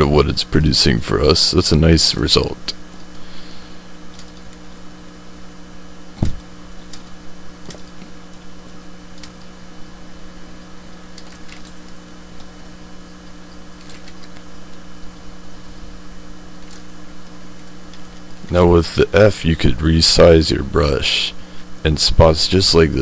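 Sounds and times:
electrical hum: 0:00.0 - 0:23.0
dull thump: 0:06.2 - 0:06.4.

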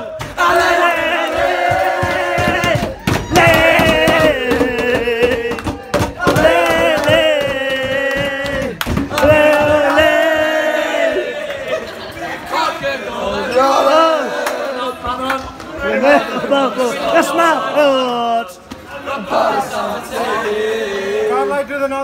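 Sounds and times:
crowd of fans singing a chant: 0:00.0 - 0:15.2, 0:15.8 - 0:21.6.

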